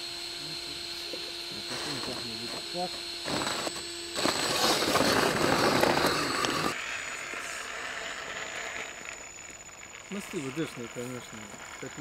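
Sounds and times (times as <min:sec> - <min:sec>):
faint high whine: 0:00.0 - 0:12.0
toy truck crunching over rocks: 0:03.3 - 0:12.0.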